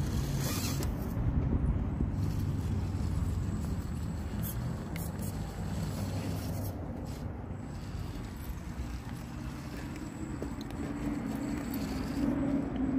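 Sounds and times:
small electric motor whirring: 0:00.0 - 0:01.3, 0:01.9 - 0:12.9
wind rumble on microphone: 0:00.4 - 0:04.4.

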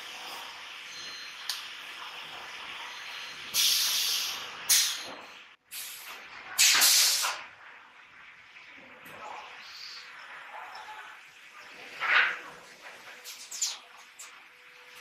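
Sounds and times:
compressed air hissing: 0:03.5 - 0:05.1, 0:05.7 - 0:07.4.

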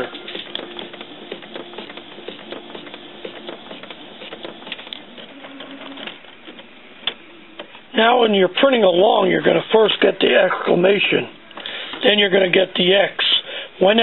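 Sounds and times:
printer mechanism clicking: 0:00.0 - 0:07.8
printer motor hum: 0:00.0 - 0:07.9.

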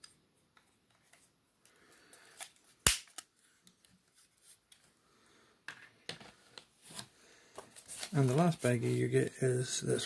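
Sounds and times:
sharp plastic snap: 0:02.8 - 0:03.3.

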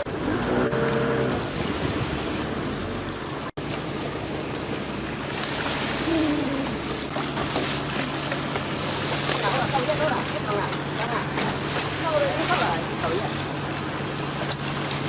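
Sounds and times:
boat engine humming: 0:00.0 - 0:15.0
water splashing against boat hull: 0:00.0 - 0:15.0.

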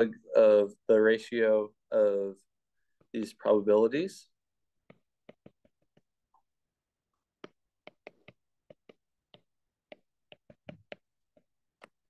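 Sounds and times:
stylus tapping on glass screen: 0:04.8 - 0:06.5, 0:07.4 - 0:12.0.

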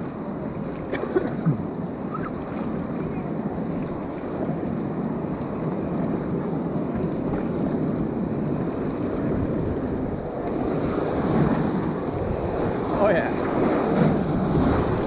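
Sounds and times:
paddles pulling through water: 0:00.0 - 0:15.0
wind buffeting microphone: 0:00.0 - 0:15.0
river rapids rushing: 0:10.1 - 0:15.0.

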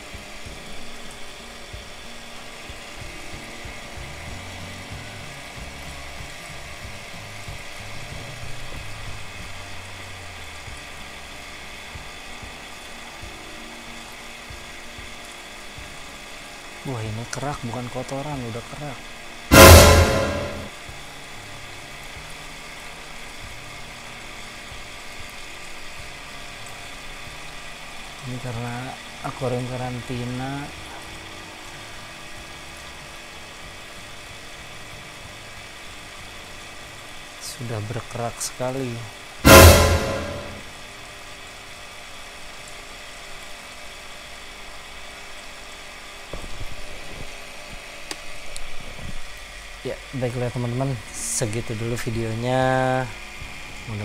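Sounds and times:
water pump humming: 0:00.0 - 0:19.9, 0:20.6 - 0:37.9
loud sound: 0:19.5 - 0:20.7, 0:39.5 - 0:40.7.

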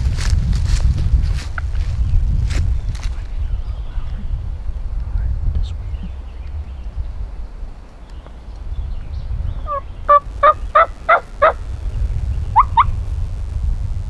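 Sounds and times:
turkey gobbling: 0:09.6 - 0:11.6, 0:12.6 - 0:12.9.

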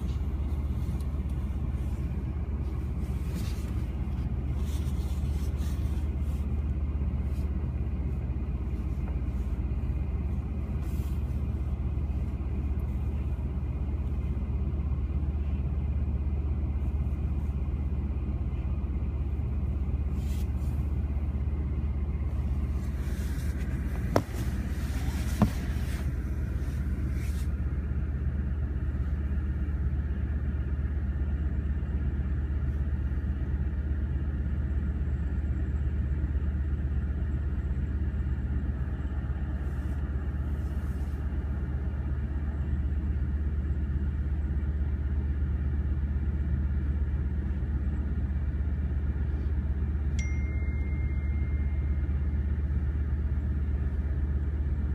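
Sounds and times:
engine rumble at idle: 0:00.0 - 0:54.9.

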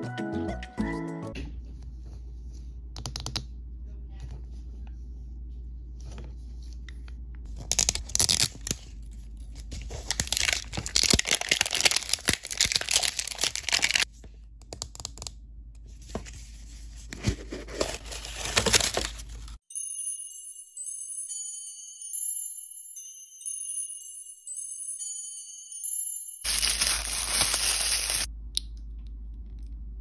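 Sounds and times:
plastic wrap crinkling: 0:07.6 - 0:14.1, 0:17.6 - 0:19.6, 0:26.5 - 0:28.3.

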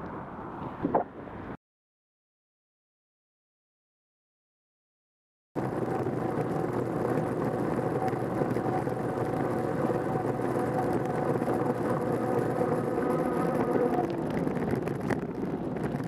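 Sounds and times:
bicycle tyres on tarmac: 0:05.6 - 0:16.0
constant hum: 0:05.6 - 0:16.0.

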